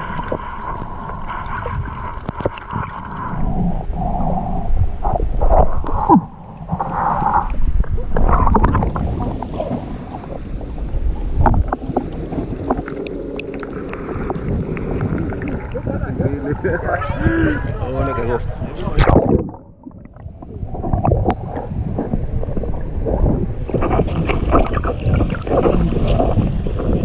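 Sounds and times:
low underwater rumble: 0:00.0 - 0:27.0
underwater gurgling and sloshing: 0:00.0 - 0:27.0.

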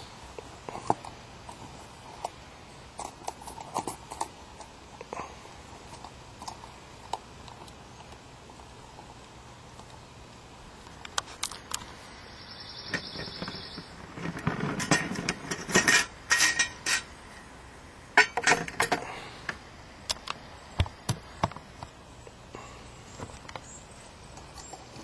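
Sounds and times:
metal cookware clinking and clattering: 0:14.7 - 0:17.1.

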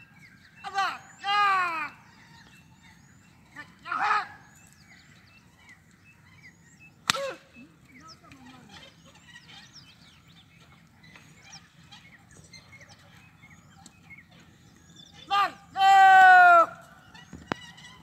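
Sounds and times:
small birds chirping: 0:00.0 - 0:18.0
sharp crack: 0:07.0 - 0:07.4.

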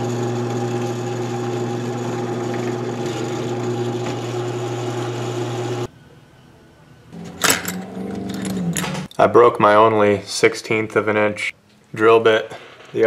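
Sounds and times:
drill press humming: 0:00.0 - 0:05.9.

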